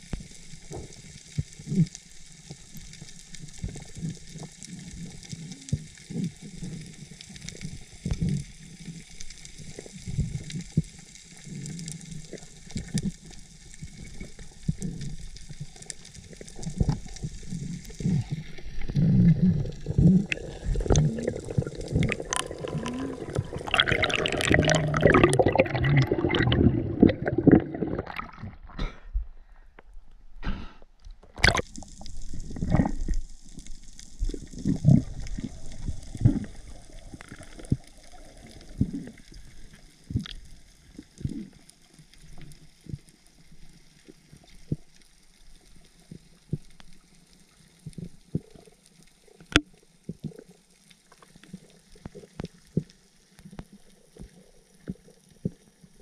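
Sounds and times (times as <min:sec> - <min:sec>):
water gurgling underwater: 0:09.6 - 0:29.0, 0:31.2 - 0:43.1.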